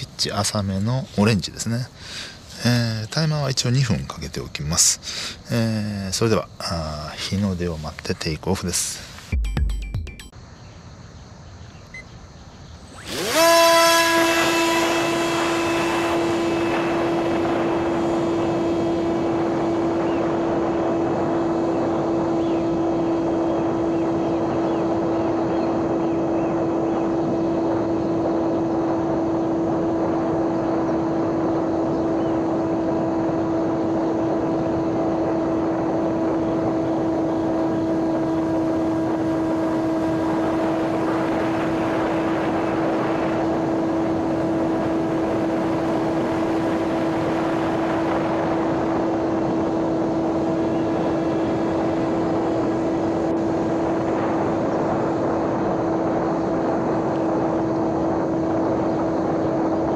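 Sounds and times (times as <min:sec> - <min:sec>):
electric motor propeller whine: 0:12.9 - 0:59.9
wind rush: 0:13.0 - 0:59.9.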